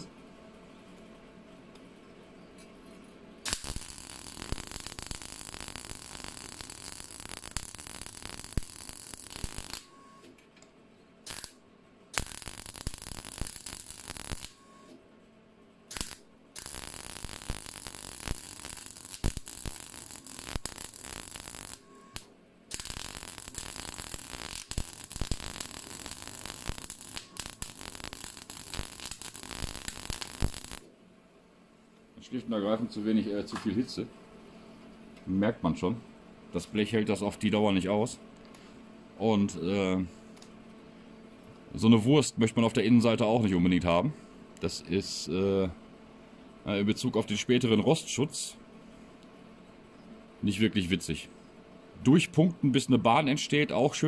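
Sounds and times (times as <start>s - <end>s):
welder arc crackling: 3.4s - 10.1s, 11.2s - 15.0s, 15.9s - 30.9s.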